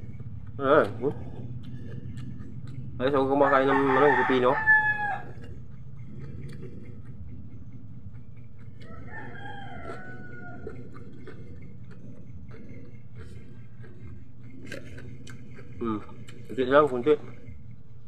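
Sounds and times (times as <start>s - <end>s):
steady low hum: 0.0s - 18.0s
rooster crowing: 3.3s - 5.4s, 8.8s - 11.0s.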